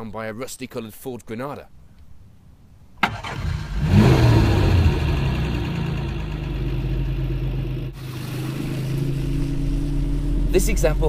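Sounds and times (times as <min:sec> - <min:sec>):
car engine starting and idling: 0:03.0 - 0:11.0.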